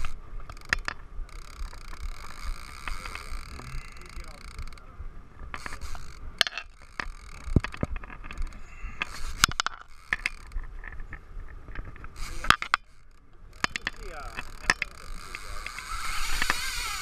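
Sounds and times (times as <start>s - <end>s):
fishing reel clicking: 0.0s - 4.9s, 5.5s - 10.7s, 12.1s - 17.0s.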